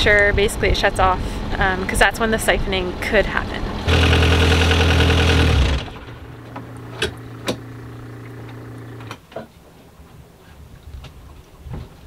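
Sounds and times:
steady hum: 0:00.6 - 0:09.2
diesel engine running: 0:01.0 - 0:09.1.

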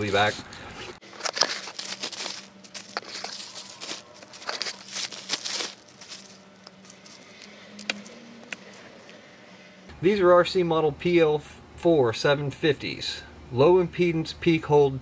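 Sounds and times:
bubble wrap and bags crinkling: 0:00.0 - 0:08.1.

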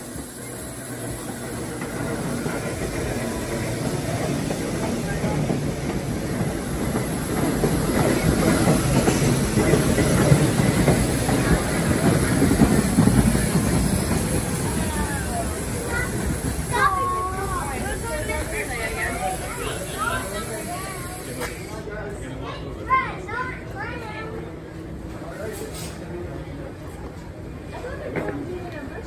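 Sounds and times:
subway train rumble and clatter: 0:00.0 - 0:29.0.

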